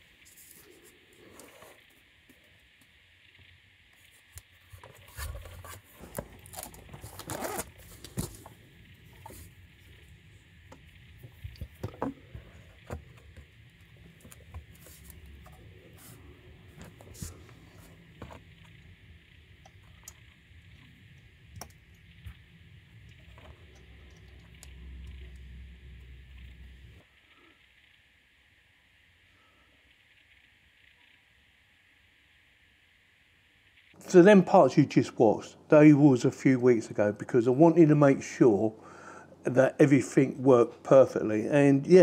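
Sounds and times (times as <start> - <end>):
cables scraping and rustling: 4.0 - 10.2.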